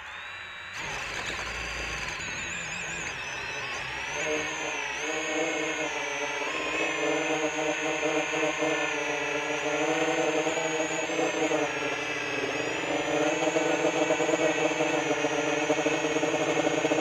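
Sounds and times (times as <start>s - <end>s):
propeller hum: 0.0s - 17.0s
quadcopter motors whining: 0.0s - 17.0s.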